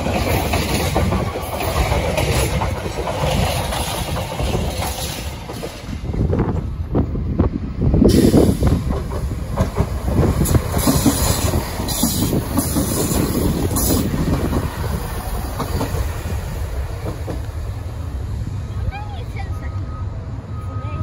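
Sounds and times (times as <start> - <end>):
wheels clattering over rail joints: 0.0 - 6.7, 8.1 - 18.0
diesel train engines running: 0.0 - 21.0.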